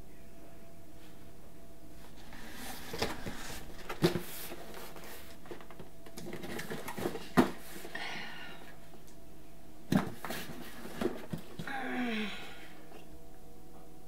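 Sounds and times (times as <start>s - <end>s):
cardboard boxes rustling and scraping: 2.1s - 8.0s, 9.9s - 11.7s.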